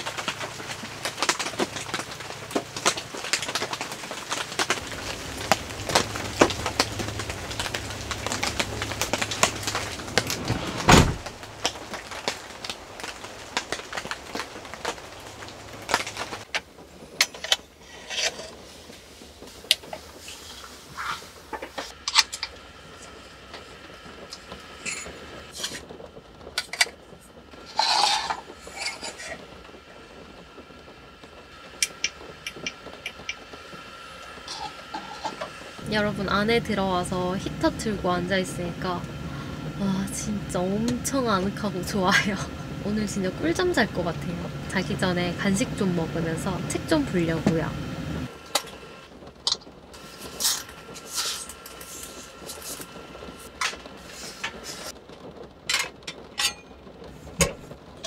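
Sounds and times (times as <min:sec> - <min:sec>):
raindrops tapping on a car: 0:00.0 - 0:17.8, 0:18.5 - 0:27.7, 0:29.4 - 0:35.8, 0:48.3 - 0:58.0.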